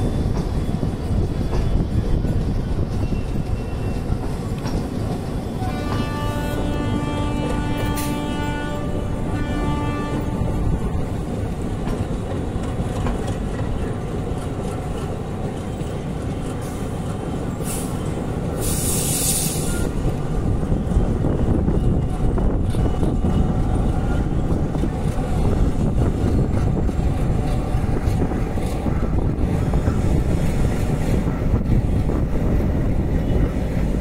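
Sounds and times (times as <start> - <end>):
train rumbling on rails: 0.0 - 34.0
train horn blasts: 5.6 - 11.4.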